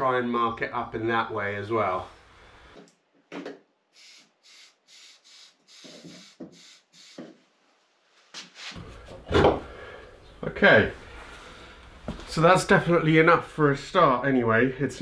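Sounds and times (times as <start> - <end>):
aerosol spray can hissing: 4.0 - 7.3.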